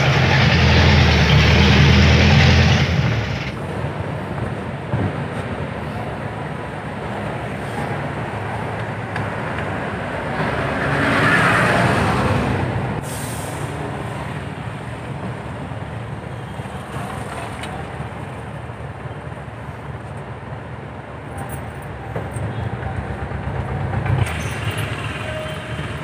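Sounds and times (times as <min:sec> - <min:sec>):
rushing noise: 0:00.0 - 0:04.7
vehicle engine low rumble: 0:00.0 - 0:05.2
road noise: 0:00.0 - 0:26.0.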